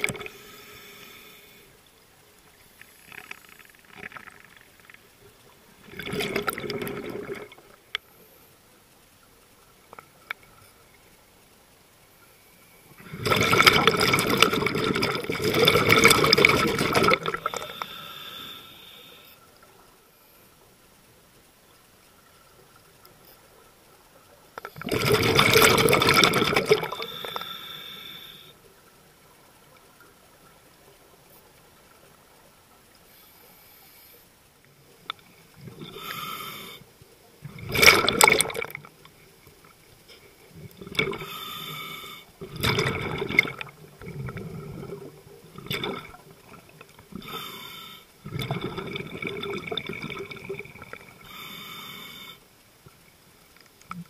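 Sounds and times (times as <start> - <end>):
exhaled bubbles underwater: 5.8 - 7.7, 13.0 - 17.8, 24.8 - 27.4, 37.4 - 38.9, 40.5 - 41.3, 42.4 - 47.4, 48.2 - 51.3.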